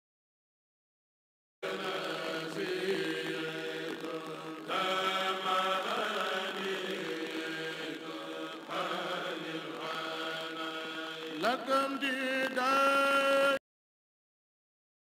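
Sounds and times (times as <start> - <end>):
men chanting a cappella: 1.6 - 13.6.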